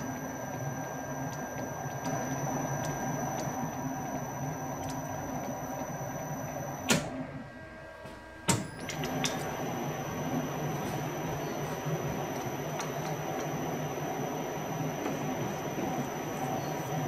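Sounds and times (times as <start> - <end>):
lathe high whine: 0.0 - 17.0.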